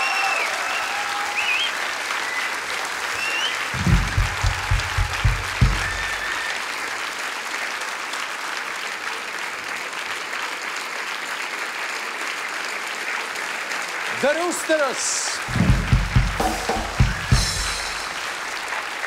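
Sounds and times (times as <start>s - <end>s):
audience applauding: 0.0s - 19.0s
low thumps: 3.7s - 6.4s, 15.5s - 18.5s.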